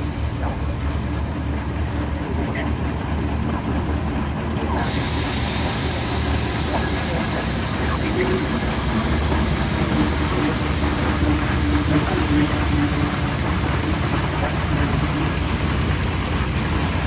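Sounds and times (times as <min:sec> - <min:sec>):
steam traction engine running: 0:00.0 - 0:17.0.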